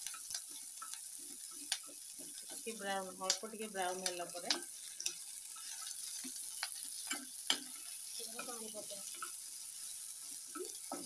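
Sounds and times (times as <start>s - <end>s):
vegetables sizzling in oil: 0.0s - 11.0s
spoon knocking against pan: 1.6s - 2.6s, 10.5s - 11.0s.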